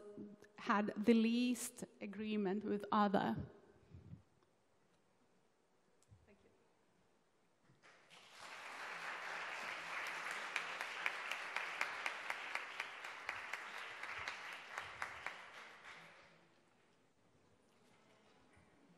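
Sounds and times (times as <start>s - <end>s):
audience applauding: 7.8s - 16.4s.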